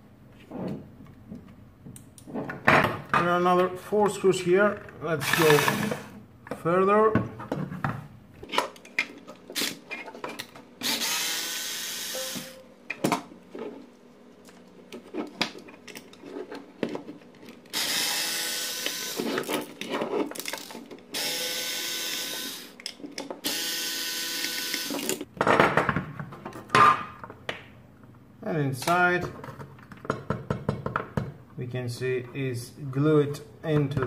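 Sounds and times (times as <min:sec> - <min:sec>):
cordless drill motor running: 0:05.2 - 0:06.0, 0:10.8 - 0:12.2, 0:17.7 - 0:19.4, 0:21.2 - 0:22.7, 0:23.4 - 0:25.1.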